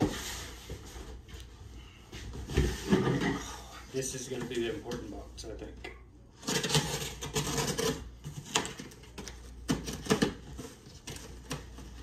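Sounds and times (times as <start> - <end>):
box cutter slicing packing tape: 6.4 - 8.0.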